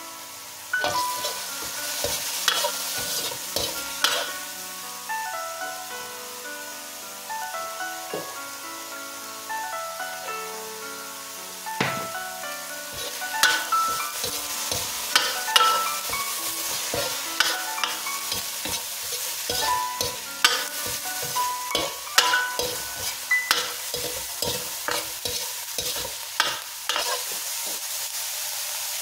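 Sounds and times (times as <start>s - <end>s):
meat sizzling in a pan: 0.0s - 29.0s
metal spoon scraping a pan: 0.8s - 4.4s, 12.9s - 27.9s.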